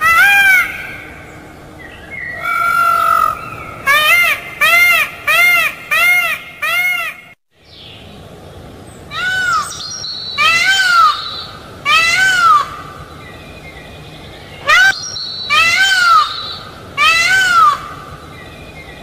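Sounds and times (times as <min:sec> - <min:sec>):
peafowl calling: 0:00.0 - 0:01.4, 0:02.1 - 0:07.3, 0:09.1 - 0:13.0, 0:14.5 - 0:18.2.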